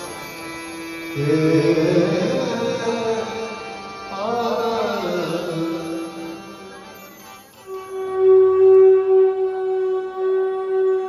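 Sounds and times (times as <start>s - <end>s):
harmonium: 0.0s - 11.0s
tabla: 0.0s - 11.0s
man singing over loudspeakers: 1.1s - 7.0s.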